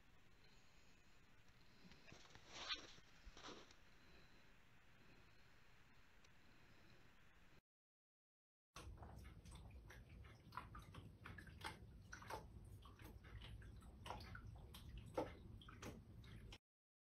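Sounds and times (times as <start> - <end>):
water splashing and dripping: 8.8 - 16.6.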